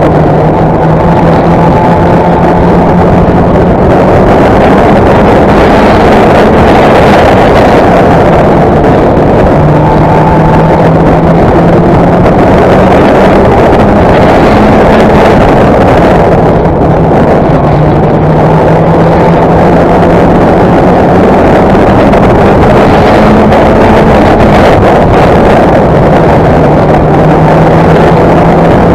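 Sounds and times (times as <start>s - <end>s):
race car engine at high revs: 0.0s - 28.9s.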